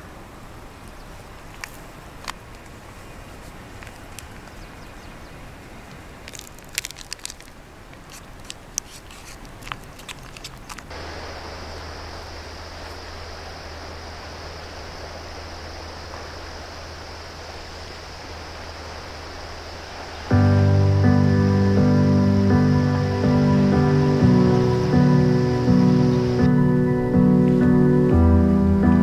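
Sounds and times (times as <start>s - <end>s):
steady outdoor hiss: 0.0s - 29.0s
low hum: 10.9s - 29.0s.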